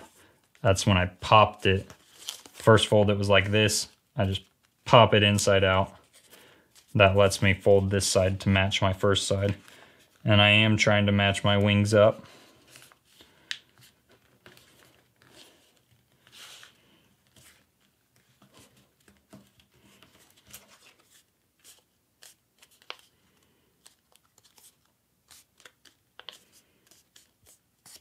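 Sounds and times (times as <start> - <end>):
paper rustling and crinkling: 1.8 - 2.9, 12.6 - 28.0.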